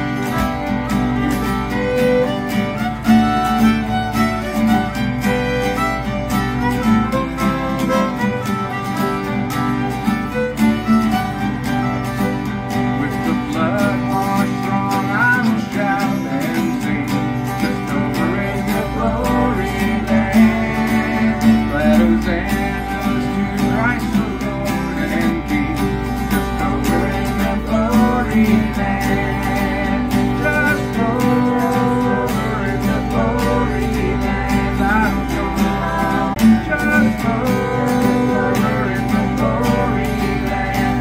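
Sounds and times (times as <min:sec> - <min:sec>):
acoustic guitars strumming: 0:00.0 - 0:41.0
fiddle playing: 0:00.0 - 0:41.0
man singing: 0:12.7 - 0:41.0.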